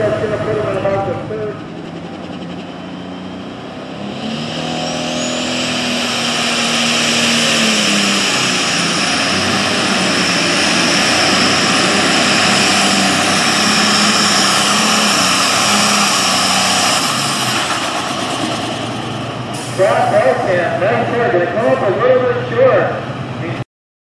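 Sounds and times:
high turbo whine: 0.0s - 23.6s
tractor diesel engine at full throttle: 0.0s - 23.6s.

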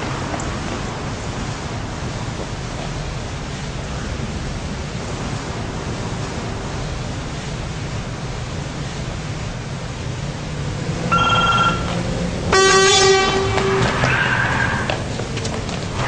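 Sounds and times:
car road and engine noise: 0.0s - 16.0s
short high tone: 11.1s - 12.0s
car horn blast: 11.1s - 14.1s.

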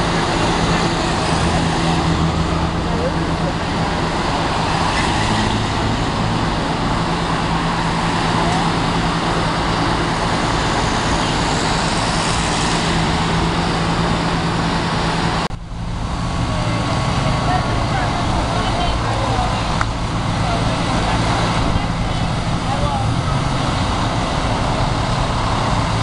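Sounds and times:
road traffic: 0.0s - 26.0s
vehicle engines idling: 0.0s - 26.0s.

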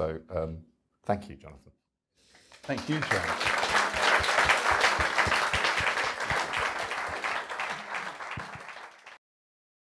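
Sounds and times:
audience applauding: 2.4s - 9.2s.

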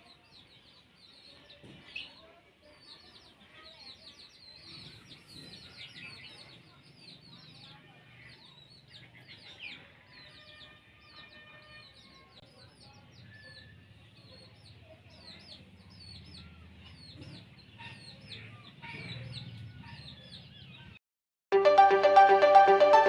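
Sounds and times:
chickens clucking: 13.2s - 20.9s.

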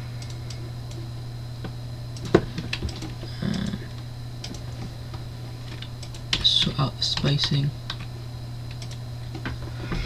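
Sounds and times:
steady low hum: 0.0s - 10.0s
computer keyboard and mouse clicks: 4.4s - 4.7s, 8.7s - 9.5s.

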